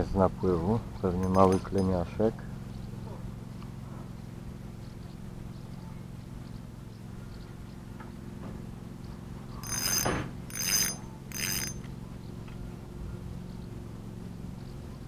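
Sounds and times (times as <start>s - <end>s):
fishing reel ratchet buzzing: 9.6s - 11.9s.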